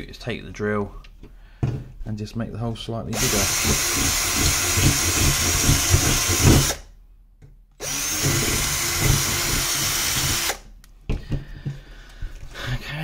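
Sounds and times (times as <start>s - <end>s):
cordless drill boring metal: 3.1s - 6.8s, 7.8s - 10.6s.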